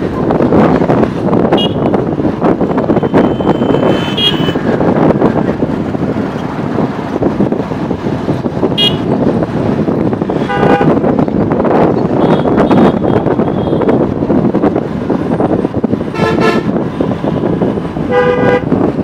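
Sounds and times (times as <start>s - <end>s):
road traffic: 0.0s - 19.0s
wind on microphone: 0.0s - 19.0s
vehicle horn toots: 3.0s - 4.6s, 8.8s - 9.1s, 10.4s - 11.0s, 12.2s - 13.9s, 16.1s - 16.8s, 18.1s - 18.7s.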